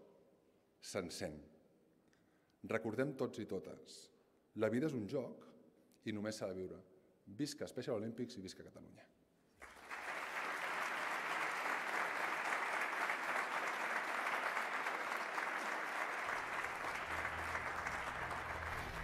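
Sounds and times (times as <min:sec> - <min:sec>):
audience applauding: 0:09.6 - 0:19.0.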